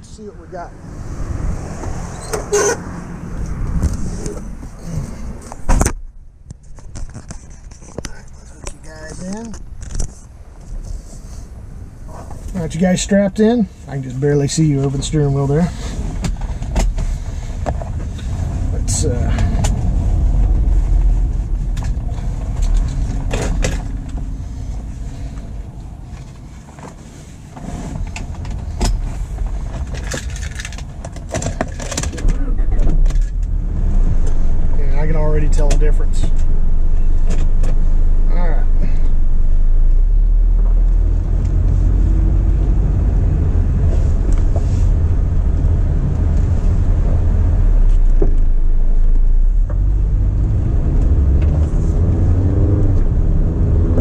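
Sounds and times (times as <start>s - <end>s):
wind noise: 0.0s - 8.3s, 15.7s - 38.2s
outdoor rumble: 0.0s - 54.0s
car door shutting: 31.4s - 33.4s.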